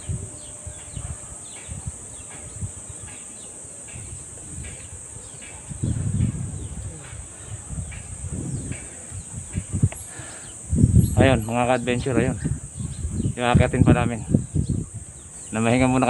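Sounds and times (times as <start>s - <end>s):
insects droning high-pitched: 0.0s - 16.0s
low rumbles on microphone: 4.0s - 16.0s.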